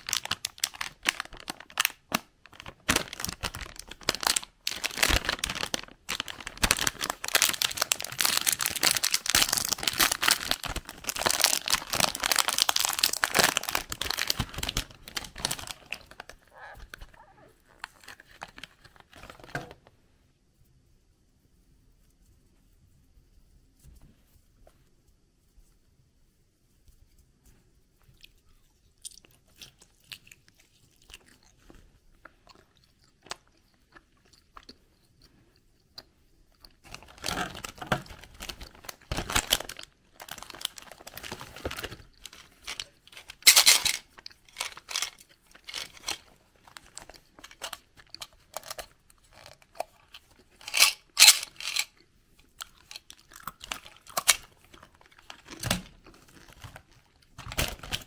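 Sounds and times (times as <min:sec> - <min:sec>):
plastic wrappers crackling: 0:00.0 - 0:19.8, 0:36.8 - 0:52.0, 0:52.6 - 0:58.0.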